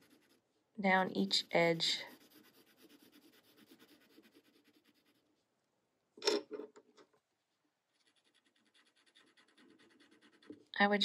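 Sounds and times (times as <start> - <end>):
pencil scratching on paper: 0.0 - 5.4, 7.9 - 10.7.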